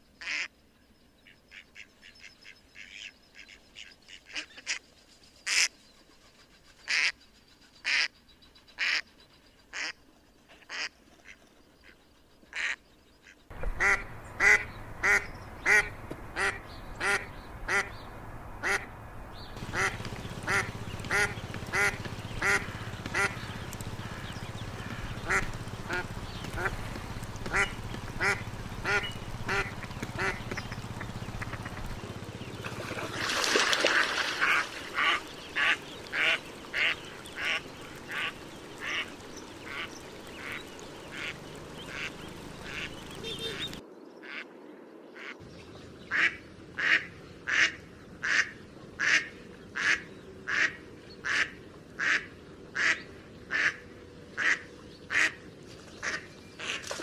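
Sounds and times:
ducks quacking: 0:01.5 - 0:04.8, 0:10.6 - 0:18.0, 0:18.6 - 0:18.9, 0:19.6 - 0:44.5, 0:46.1 - 0:57.0
steady background noise: 0:13.5 - 0:57.0.

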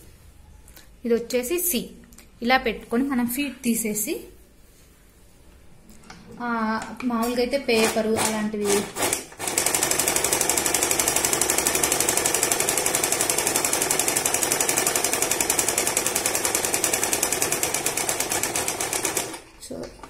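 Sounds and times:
sewing machine running: 0:07.7 - 0:19.5.

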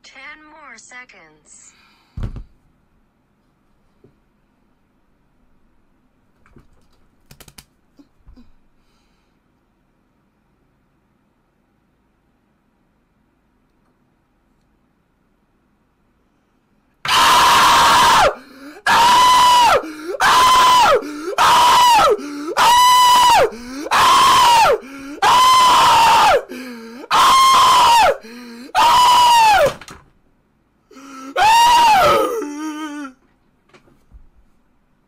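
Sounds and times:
man screaming: 0:17.1 - 0:29.8, 0:30.9 - 0:33.2.

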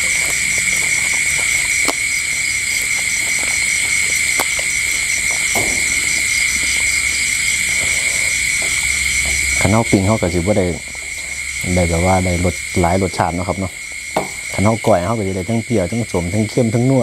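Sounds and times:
light clicks of eating: 0:00.0 - 0:10.0
crickets trilling: 0:00.0 - 0:17.0.

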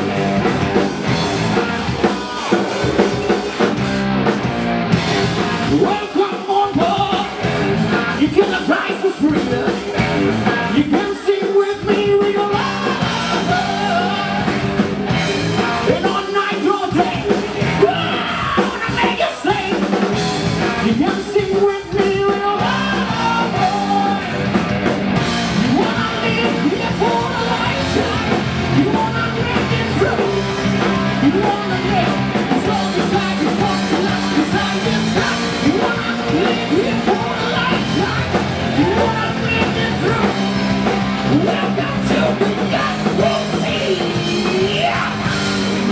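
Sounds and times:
drum kit: 0:00.0 - 0:45.9
electric guitar: 0:00.0 - 0:45.9
man singing into microphone: 0:05.6 - 0:07.3, 0:07.9 - 0:09.9, 0:10.7 - 0:14.5, 0:15.8 - 0:19.8, 0:20.8 - 0:24.2, 0:25.6 - 0:30.4, 0:31.2 - 0:40.4, 0:41.3 - 0:45.9.

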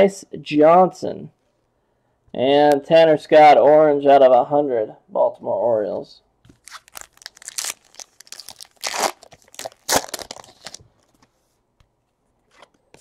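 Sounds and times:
foil wrapper tearing: 0:06.6 - 0:10.8.

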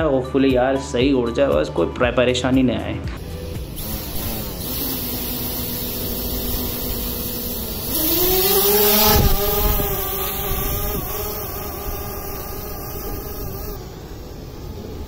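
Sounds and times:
drone propellers humming: 0:03.2 - 0:15.0.

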